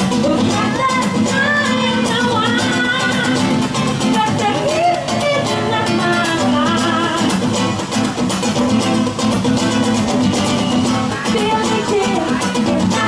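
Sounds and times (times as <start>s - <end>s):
music with steady beat and melody: 0.0s - 13.0s.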